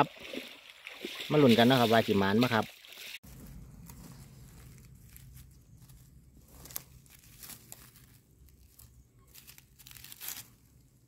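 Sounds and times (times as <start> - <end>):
dry leaves rustling and crackling: 3.0 - 11.0.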